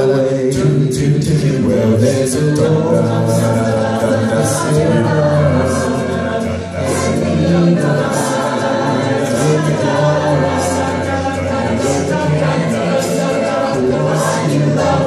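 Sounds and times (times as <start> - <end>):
a cappella group singing: 0.0 - 15.0.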